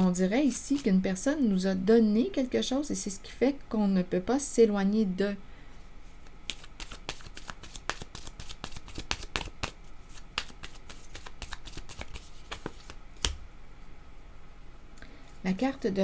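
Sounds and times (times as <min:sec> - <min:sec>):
cards being shuffled: 0:06.4 - 0:13.4.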